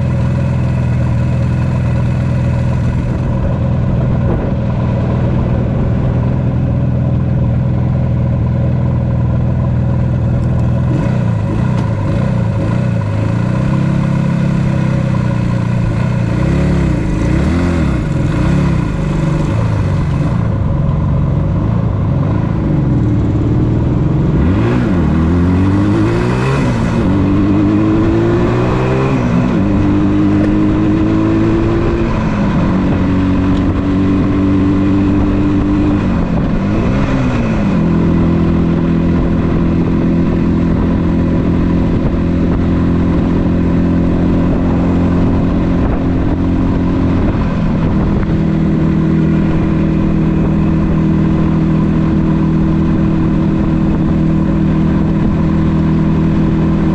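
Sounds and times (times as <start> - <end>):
motorcycle engine accelerating: 0.0 - 56.9.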